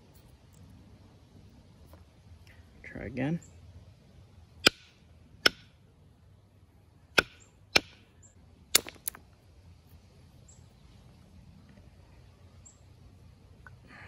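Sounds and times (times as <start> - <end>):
antler striking flint: 4.6 - 5.7, 7.1 - 8.1, 8.7 - 9.3.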